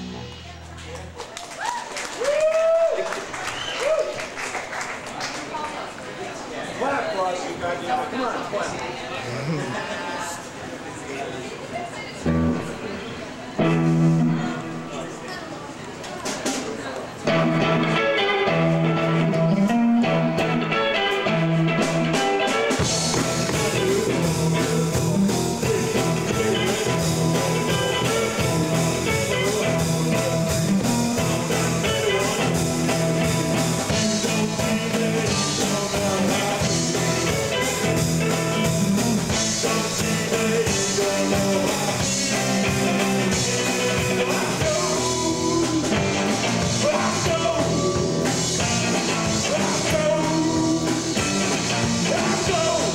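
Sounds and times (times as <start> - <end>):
rock band playing live: 0.0 - 1.3, 12.2 - 13.0, 13.6 - 15.2, 16.2 - 52.9
person singing: 22.1 - 52.9.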